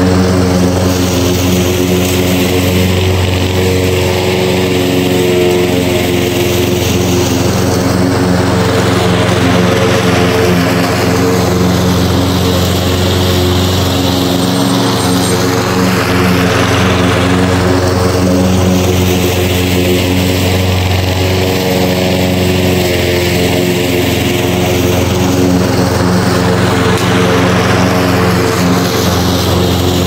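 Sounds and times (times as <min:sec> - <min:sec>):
lawn mower engine running: 0:00.0 - 0:30.0.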